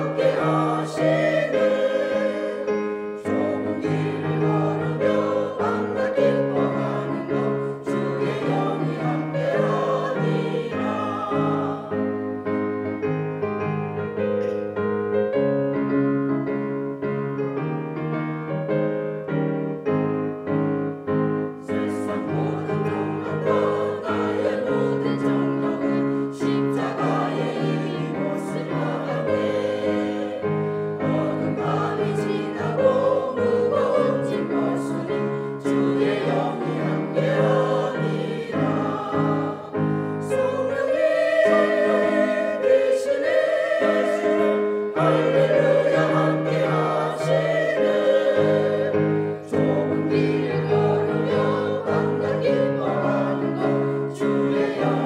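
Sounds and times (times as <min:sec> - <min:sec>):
group singing a church song: 0:00.0 - 0:13.0, 0:21.6 - 0:55.0
sustained accompaniment: 0:20.0 - 0:55.0.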